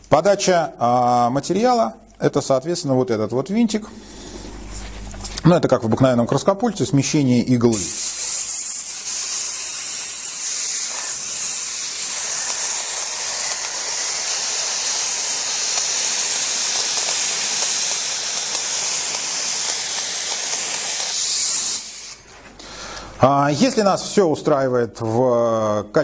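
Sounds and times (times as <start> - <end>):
spray gun air hiss: 3.8 - 5.5, 7.1 - 22.4.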